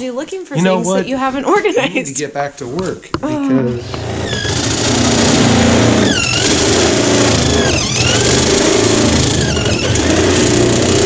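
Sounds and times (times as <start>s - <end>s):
cordless drill cutting metal: 4.3s - 11.0s.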